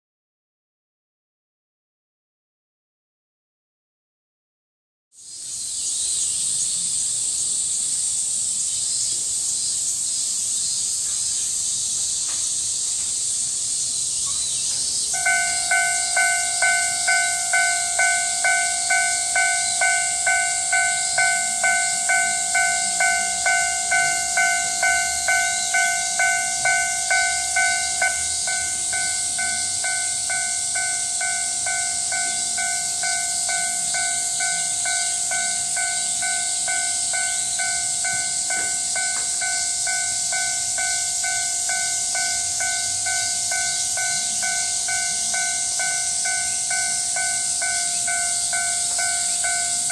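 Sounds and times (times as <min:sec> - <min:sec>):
cicadas hissing: 0:05.2 - 0:49.9
level crossing warning bell: 0:15.1 - 0:49.9.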